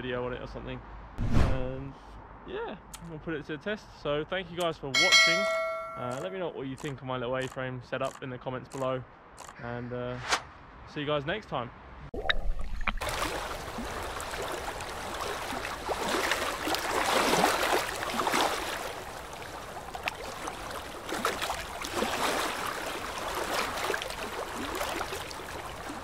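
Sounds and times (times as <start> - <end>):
small waves sloshing and gurgling: 12.2 - 26.0
water splashing over camera: 12.2 - 26.0.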